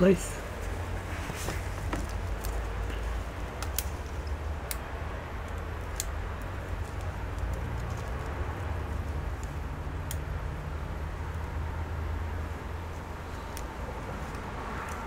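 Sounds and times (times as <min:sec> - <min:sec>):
light plastic clicks: 0:03.6 - 0:04.8.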